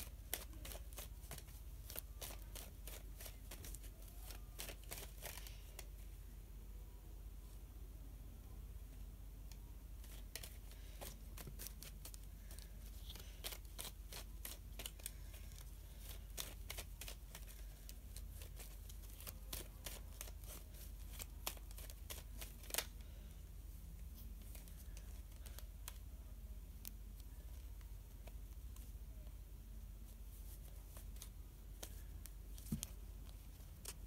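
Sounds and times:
cards being shuffled: 0:00.0 - 0:06.0, 0:10.0 - 0:23.3, 0:30.1 - 0:34.0
low steady hum: 0:00.0 - 0:34.0.

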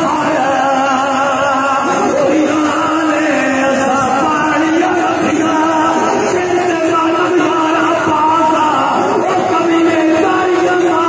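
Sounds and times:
man chanting through loudspeakers: 0:00.0 - 0:11.0.

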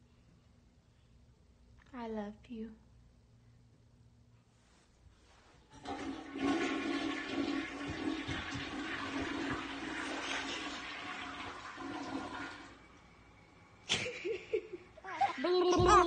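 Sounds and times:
toilet flushing: 0:05.7 - 0:13.8.

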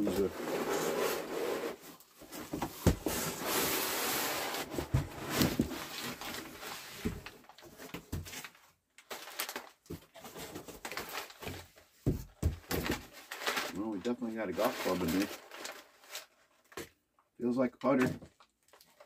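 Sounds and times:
packing paper rustling: 0:00.0 - 0:16.8.

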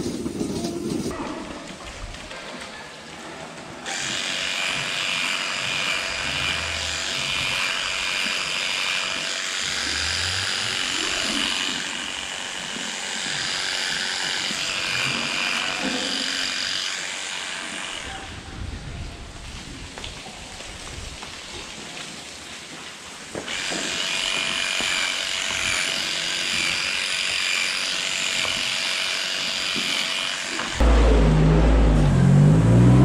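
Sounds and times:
electric clipper buzzing: 0:03.9 - 0:18.1, 0:23.4 - 0:30.9.

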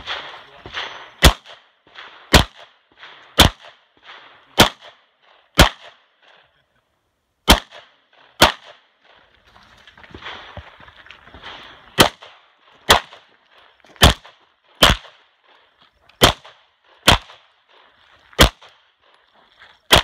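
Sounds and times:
pistol shots: 0:00.0 - 0:06.1, 0:07.4 - 0:09.2, 0:11.4 - 0:13.3, 0:14.0 - 0:15.3, 0:16.2 - 0:17.5, 0:18.4 - 0:18.8.

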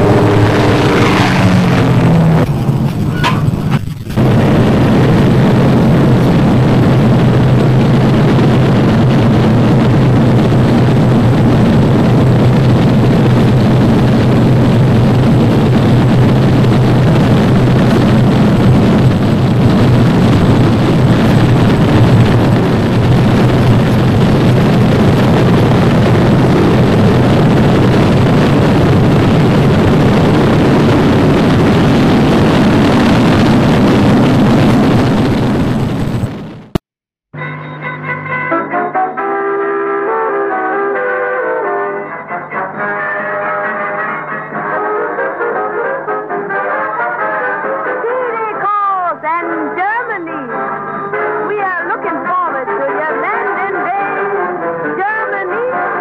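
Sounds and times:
propeller plane engines running: 0:00.0 - 0:36.2.

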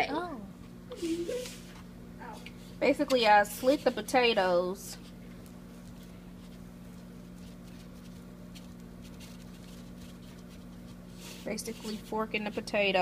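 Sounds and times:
steady low hum: 0:00.0 - 0:13.0
fork scraping potato: 0:06.4 - 0:12.7.

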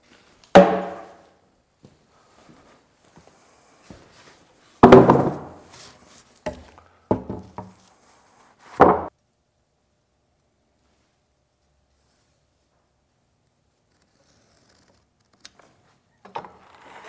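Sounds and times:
wooden thunks and knocks: 0:04.8 - 0:05.6, 0:06.5 - 0:07.7, 0:08.8 - 0:09.1.

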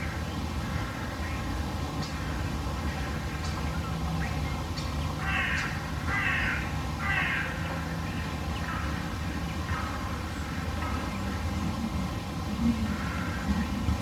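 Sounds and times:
steady low hum: 0:00.0 - 0:14.0
crow cawing: 0:05.2 - 0:07.6.

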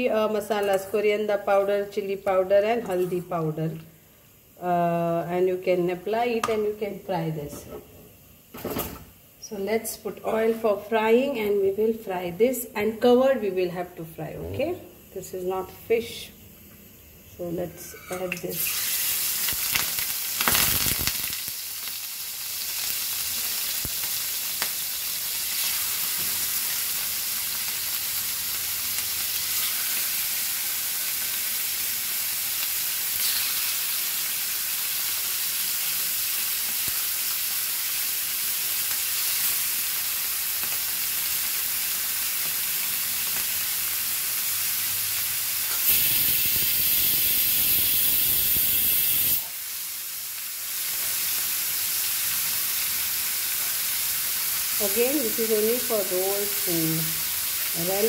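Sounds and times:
meat sizzling in hot oil: 0:18.4 - 0:58.0.

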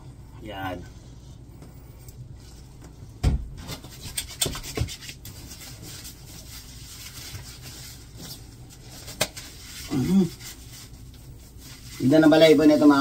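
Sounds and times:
hands scrubbing wet dog fur: 0:03.7 - 0:13.0.

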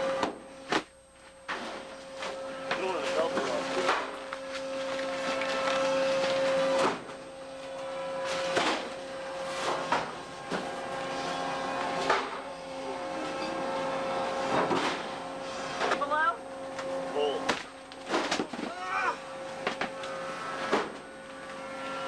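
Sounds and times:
machinery humming: 0:00.0 - 0:22.0.

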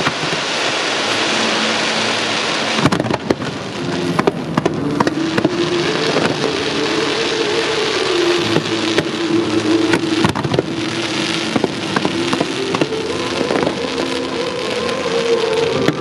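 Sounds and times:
fireworks bangs: 0:00.0 - 0:16.0
fireworks crackling: 0:00.0 - 0:16.0.

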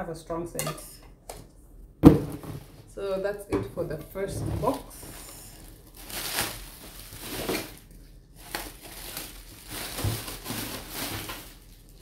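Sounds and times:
bubble wrap crinkling: 0:04.6 - 0:12.0.

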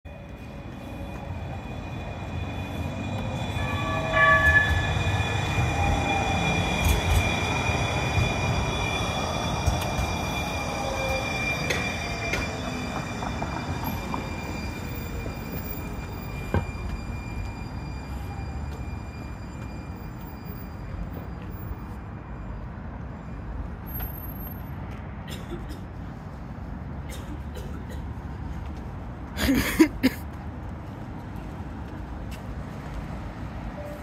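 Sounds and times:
streetcar wheels rumbling on rails: 0:00.0 - 0:34.0
brief warning signal: 0:02.1 - 0:20.2.

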